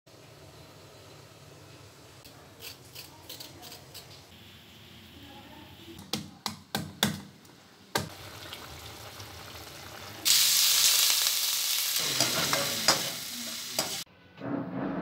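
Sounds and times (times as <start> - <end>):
vegetables sizzling in hot oil: 8.0 - 14.0.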